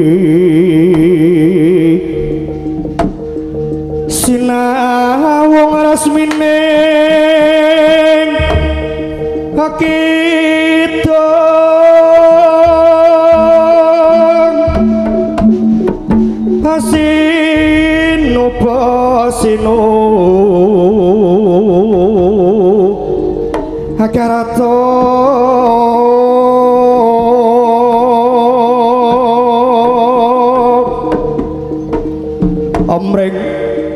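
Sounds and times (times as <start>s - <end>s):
wavering melody line: 0.0s - 33.9s
hand drum strokes: 2.5s - 4.8s, 11.9s - 22.5s.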